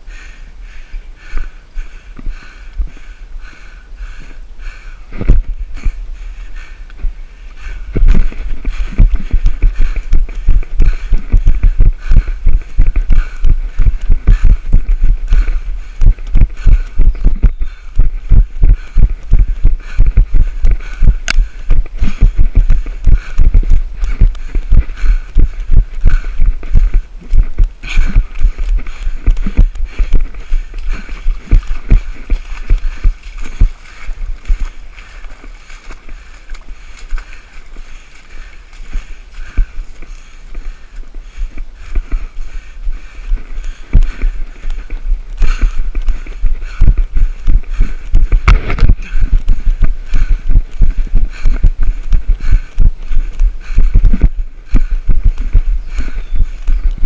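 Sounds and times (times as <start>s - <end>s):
footfall thuds on dirt trail: 7.9s - 37.4s, 43.7s - 57.0s.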